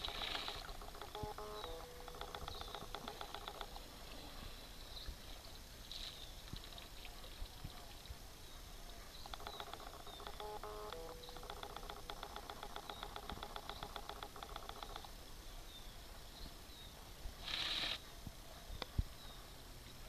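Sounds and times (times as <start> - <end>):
camera autofocus motor ticking: 0.0 - 3.9, 9.2 - 15.1.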